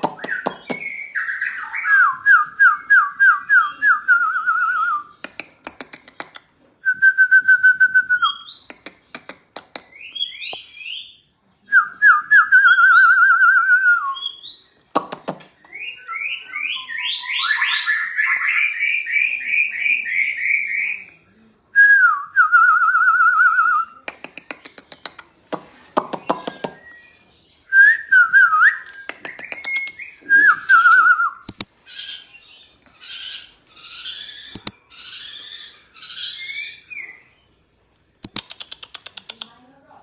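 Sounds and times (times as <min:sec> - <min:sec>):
bird song with whistles and trills: 0:00.0 - 0:05.2, 0:06.8 - 0:08.7, 0:09.9 - 0:24.6, 0:26.0 - 0:37.6
bird rapid clicks: 0:05.2 - 0:06.5, 0:08.7 - 0:10.0, 0:14.9 - 0:15.6, 0:24.1 - 0:26.8, 0:28.8 - 0:30.0, 0:31.5 - 0:31.7, 0:34.5 - 0:34.8, 0:38.2 - 0:39.6.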